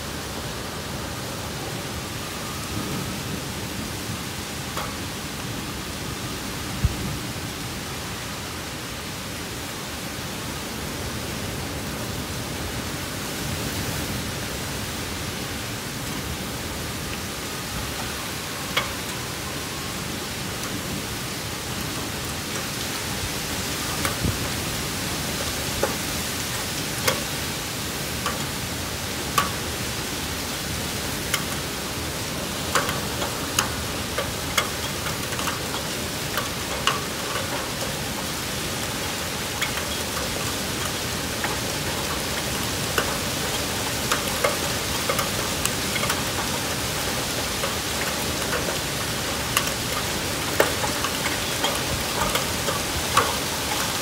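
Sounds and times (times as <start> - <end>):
heavy rain hissing: 0.0 - 54.0
hailstones ticking: 16.0 - 54.0.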